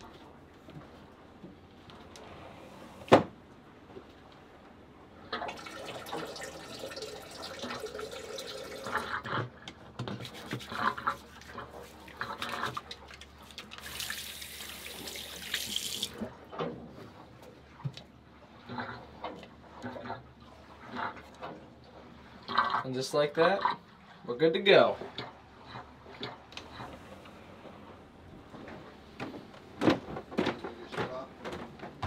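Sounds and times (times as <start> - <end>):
water running from a tap: 5.5 - 9.1, 13.8 - 16.2.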